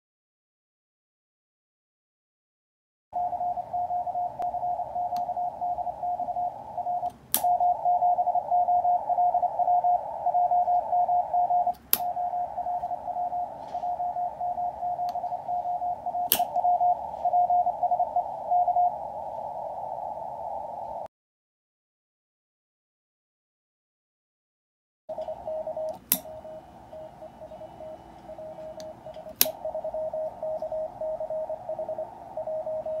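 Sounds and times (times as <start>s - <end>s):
morse code tone: 3.2s - 21.1s, 25.1s - 33.0s
antenna switch clicking: 4.4s - 5.3s, 7.0s - 7.7s, 11.7s - 12.2s, 16.2s - 16.7s, 25.2s - 26.5s, 28.2s - 29.6s.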